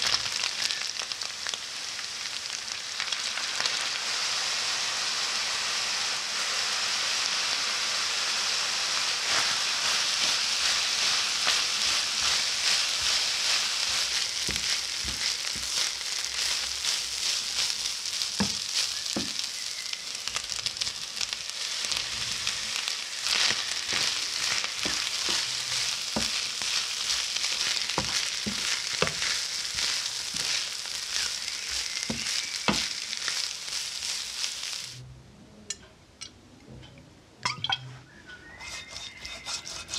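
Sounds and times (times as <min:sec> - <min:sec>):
food sizzling in a frying pan: 0:00.0 - 0:35.0
seeds dropping into pan: 0:09.3 - 0:35.0
wooden spoon stirring: 0:09.3 - 0:35.0, 0:38.6 - 0:39.9.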